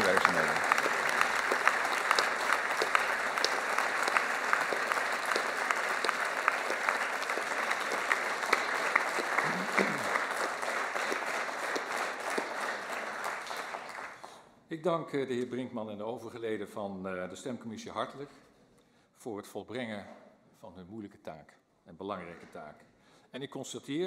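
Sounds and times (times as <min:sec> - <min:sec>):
audience applause: 0:00.0 - 0:14.3.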